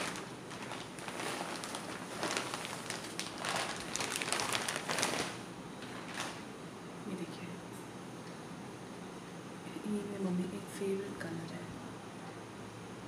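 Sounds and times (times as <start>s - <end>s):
plastic packaging crinkling: 0.0s - 6.5s.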